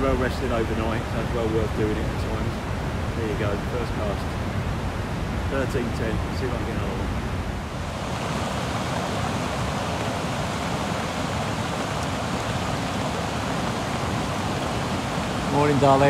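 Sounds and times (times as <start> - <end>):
white water rushing: 0.0 - 16.0
heavy rain falling: 7.6 - 16.0.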